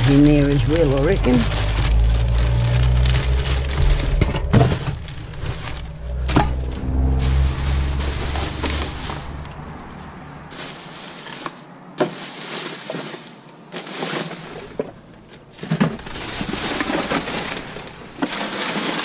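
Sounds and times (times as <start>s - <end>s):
plastic and paper crinkling: 0.0s - 19.0s.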